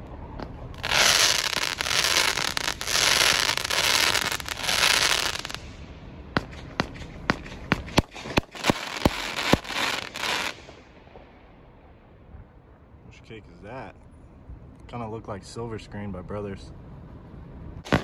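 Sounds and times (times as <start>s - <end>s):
firework bangs: 0.4s - 11.4s
firework comet tails crackling: 0.4s - 11.6s.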